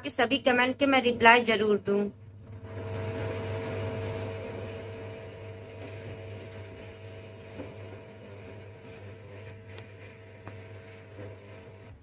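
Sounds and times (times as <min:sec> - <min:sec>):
washing machine drum spinning: 0:00.2 - 0:12.0.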